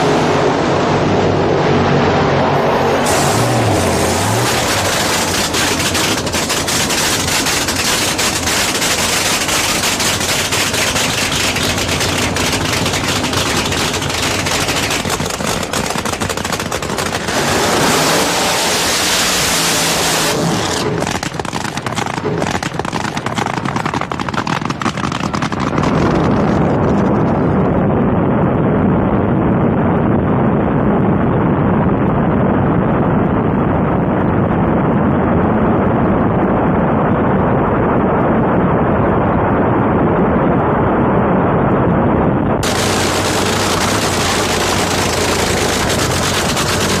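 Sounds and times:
loud crackling race car engines: 0.0 - 27.9, 42.5 - 47.0.

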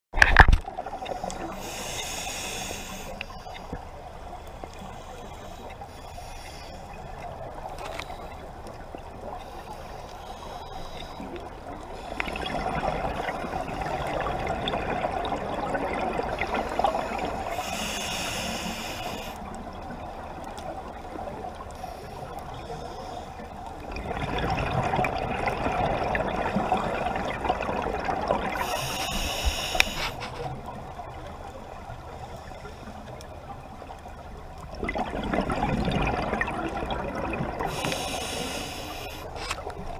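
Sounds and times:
hissing regulator inhalations: 1.0 - 3.7, 9.4 - 11.4, 16.4 - 19.4, 28.6 - 30.5, 37.7 - 39.6.

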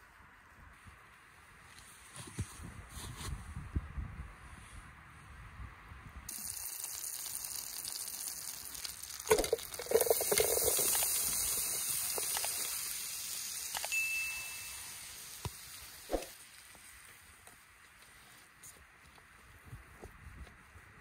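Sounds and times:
butter sizzling in a pan: 6.3 - 16.2.

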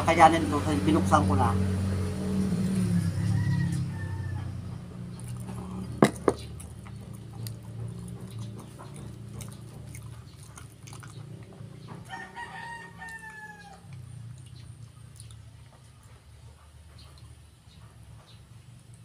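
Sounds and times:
steady low hum: 0.0 - 12.1
rooster crowing: 2.8 - 4.8, 12.0 - 14.0
chewing and mouth clicks: 5.0 - 17.4.

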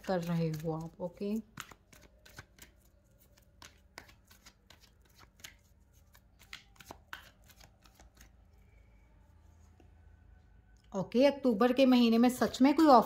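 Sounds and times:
cards being shuffled: 0.0 - 8.4.

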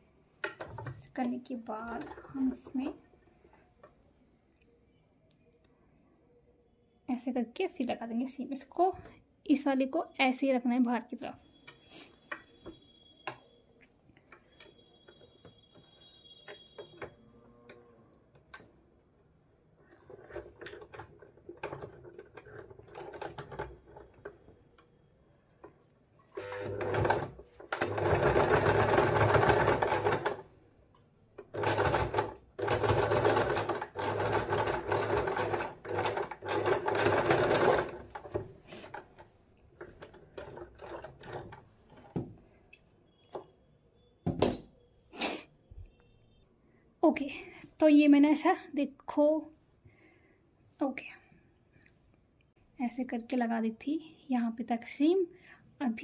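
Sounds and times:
sewing machine stitching: 19.8 - 24.4, 26.3 - 30.5, 31.4 - 39.2, 39.8 - 42.2.

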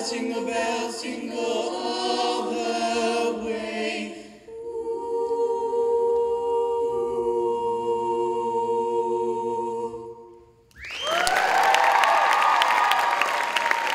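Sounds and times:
a cappella group singing chord: 0.0 - 10.6
audience applause and whoops: 10.8 - 13.9.

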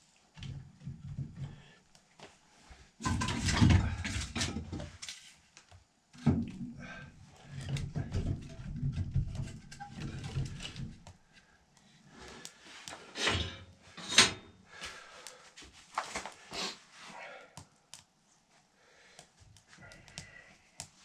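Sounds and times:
kindling handled in firebox: 7.5 - 11.1.

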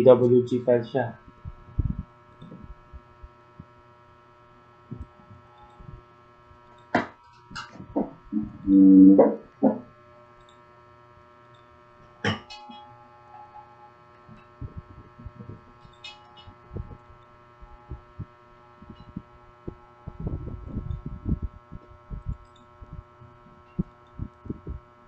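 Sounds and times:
electrical hum: 0.0 - 25.0
faint low thumps: 1.2 - 3.7, 14.6 - 15.8, 16.7 - 24.9.

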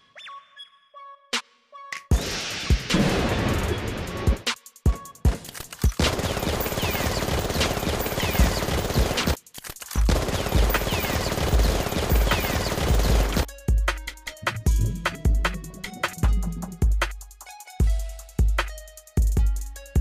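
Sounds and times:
gunshots: 5.6 - 13.5
rapid automatic gunfire: 5.9 - 13.5
heavy bass music beat: 12.2 - 20.0.

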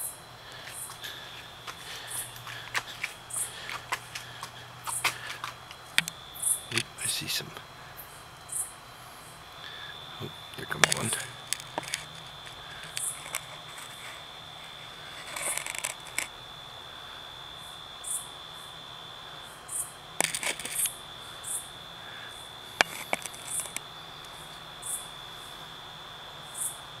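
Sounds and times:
cricket trill: 0.0 - 27.0
insect chirps: 0.0 - 27.0
handling clicks and rustles: 10.6 - 16.3, 20.2 - 20.9, 22.8 - 23.8.

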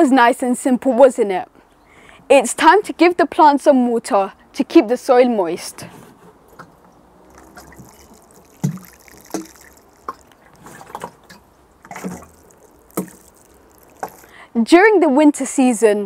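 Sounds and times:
water pouring onto soil: 7.0 - 14.5.

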